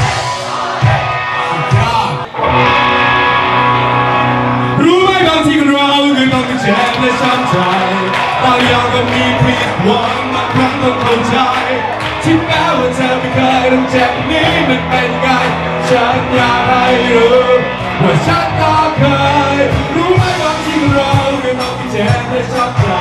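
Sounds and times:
electric guitar: 0.0 - 23.0
man singing into a microphone: 4.7 - 23.0
steady drum beat: 18.2 - 23.0.

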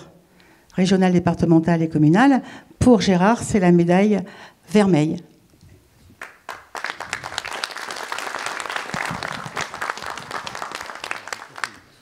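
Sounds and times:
audience applause: 6.2 - 12.0.

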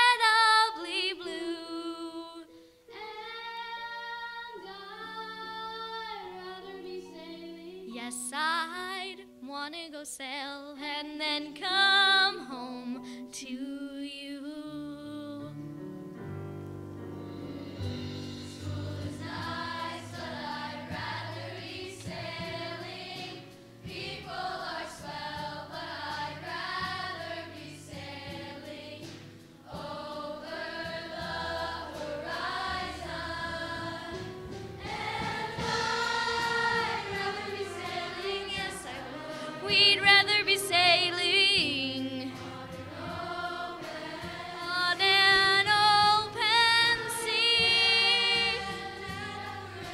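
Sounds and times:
choir singing: 2.9 - 7.8, 18.4 - 49.9.

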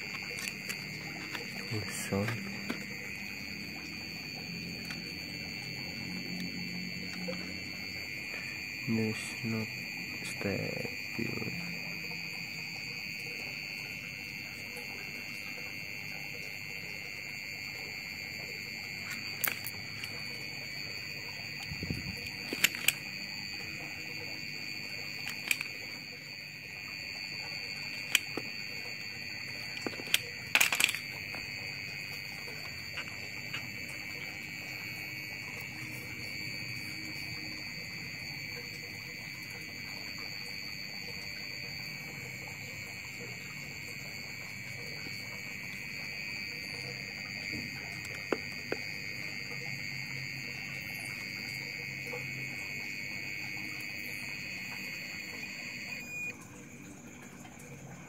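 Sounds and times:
high-pitched electronic buzzing tone: 0.0 - 58.0
sharp clicks of handled wires: 22.2 - 23.1, 25.2 - 25.8, 27.9 - 28.6, 29.7 - 31.4.

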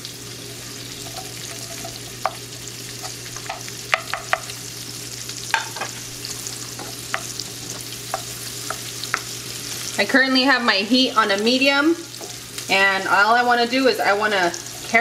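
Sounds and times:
onions sizzling in a skillet: 0.0 - 15.0
wooden spoon stirring: 1.0 - 2.4.

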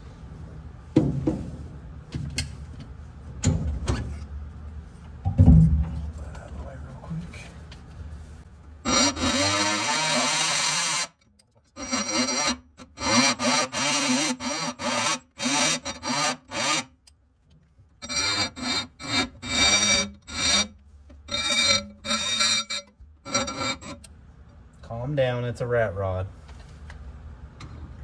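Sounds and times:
die grinder grinding metal: 8.8 - 11.2, 11.8 - 16.9, 18.0 - 20.7, 21.3 - 24.0.

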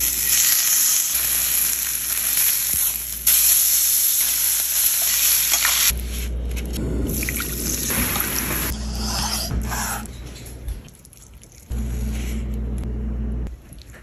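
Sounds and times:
low hum: 6.0 - 10.9, 11.7 - 13.7.

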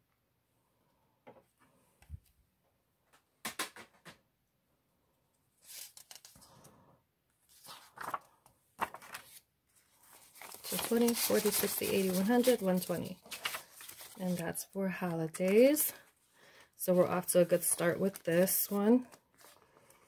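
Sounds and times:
paper banknotes rustling: 7.5 - 16.0.

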